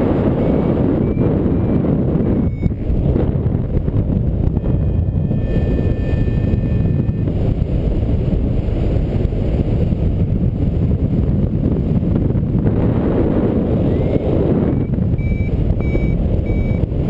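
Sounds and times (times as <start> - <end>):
wind buffeting microphone: 0.0 - 17.0
thin steady tone: 4.5 - 7.3.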